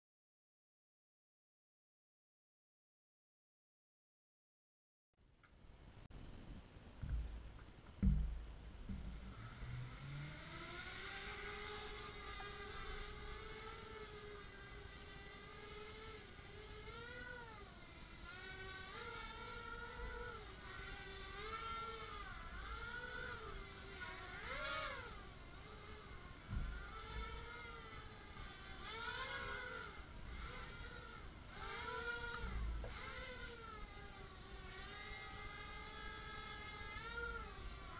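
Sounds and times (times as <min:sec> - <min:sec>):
low thump: 0:07.0 - 0:07.4, 0:08.0 - 0:09.3, 0:26.5 - 0:26.8
quadcopter motors whining: 0:07.0 - 0:37.9.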